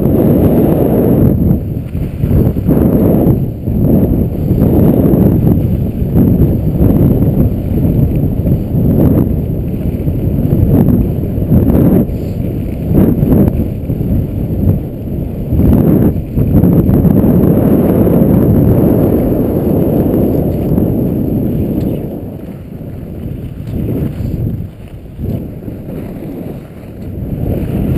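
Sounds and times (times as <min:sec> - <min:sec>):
wind on camera microphone: 0:00.0 - 0:27.9
skis scraping on snow: 0:18.8 - 0:27.9.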